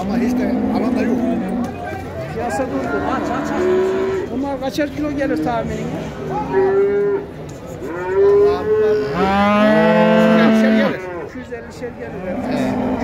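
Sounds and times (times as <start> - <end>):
cattle mooing: 0.0 - 1.8, 2.9 - 4.4, 6.3 - 11.4, 12.2 - 13.0.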